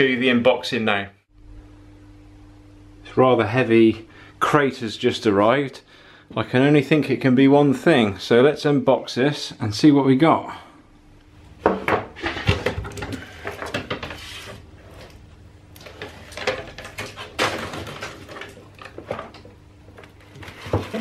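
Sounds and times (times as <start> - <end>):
contents rustling: 15.8 - 21.0.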